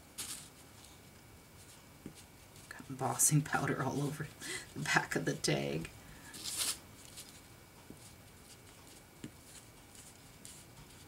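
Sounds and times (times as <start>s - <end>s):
felt pad scratchy rub: 6.4s - 11.0s.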